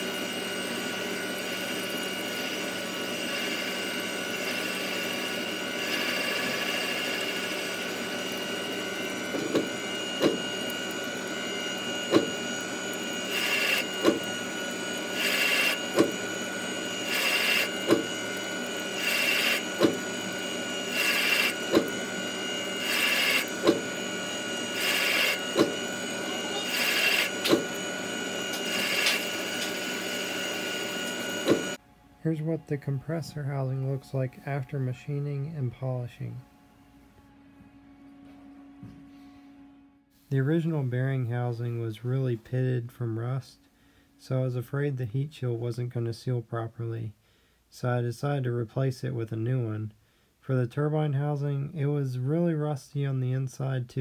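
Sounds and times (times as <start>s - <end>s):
lathe spindle whine: 0.0s - 44.6s
click and hiss of tool cutting: 19.5s - 20.0s, 27.0s - 27.6s, 28.5s - 29.8s.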